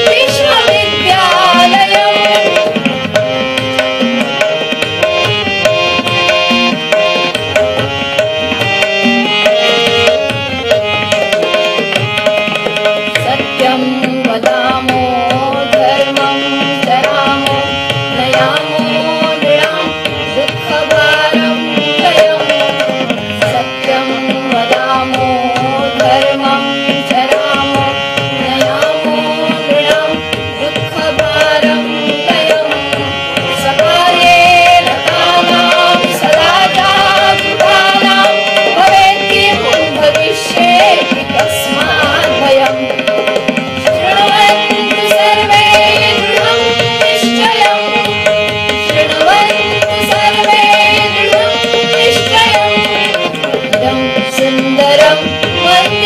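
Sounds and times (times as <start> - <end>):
group singing into microphones: 0.0 - 56.0
hand drum beat: 18.2 - 19.8, 33.8 - 55.8.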